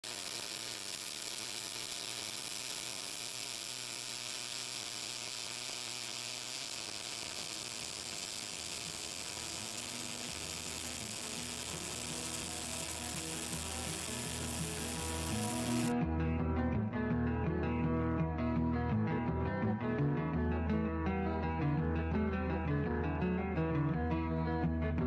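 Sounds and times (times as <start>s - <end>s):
welding arc sizzling: 0.0s - 16.0s.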